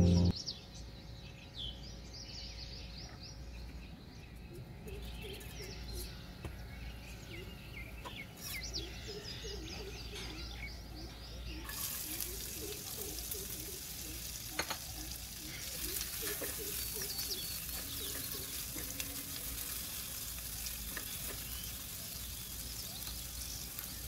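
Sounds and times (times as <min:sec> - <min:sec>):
background music: 0:00.0 - 0:00.3
faint low hum: 0:00.0 - 0:00.3
birds chirping: 0:00.0 - 0:24.0.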